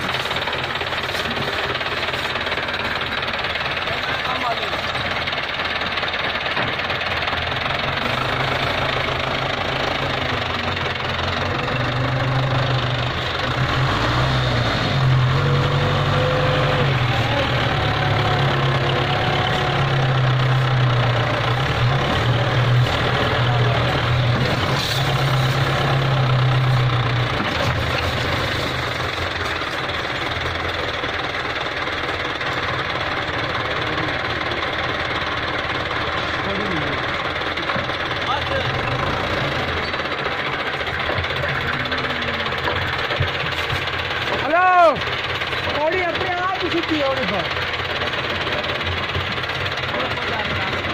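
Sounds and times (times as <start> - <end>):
tractor diesel engine straining: 0.0 - 50.9.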